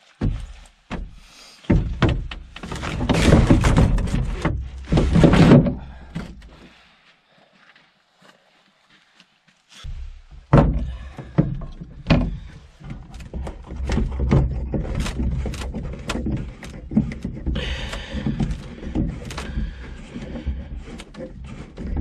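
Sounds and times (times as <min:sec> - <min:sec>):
knocks on canoe hull: 0:00.2 - 0:06.3
heavy thuds: 0:00.2 - 0:06.7, 0:09.8 - 0:22.0
clicks and rustling: 0:09.8 - 0:22.0.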